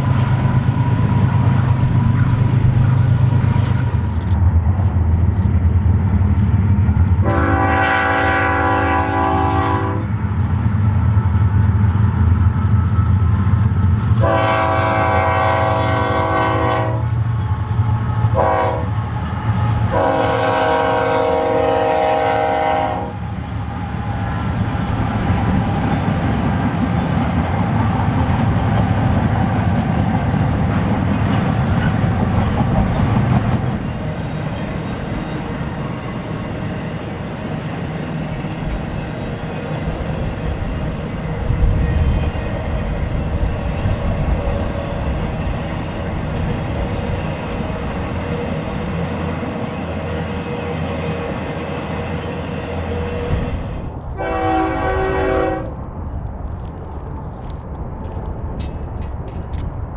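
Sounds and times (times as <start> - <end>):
locomotive air horn chord: 7.2 - 10.1, 14.2 - 17.1, 18.3 - 19.0, 19.9 - 23.2, 54.2 - 55.8.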